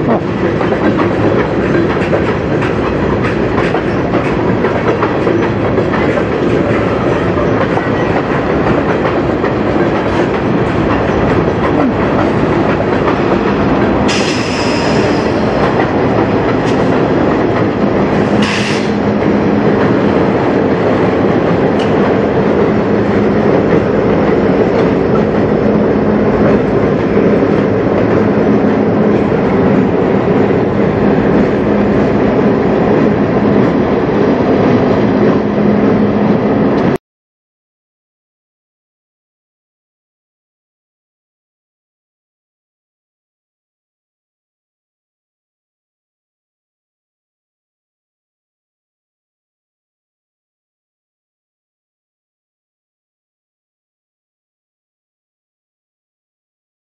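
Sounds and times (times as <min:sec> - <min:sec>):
diesel locomotive drone: 0:00.0 - 0:37.0
train wheels clacking on rails: 0:00.0 - 0:37.0.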